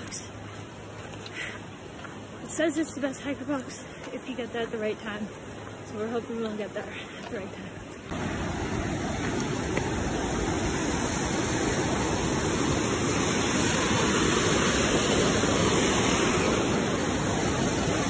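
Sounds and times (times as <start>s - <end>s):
river rushing over rocks: 7.4s - 18.0s.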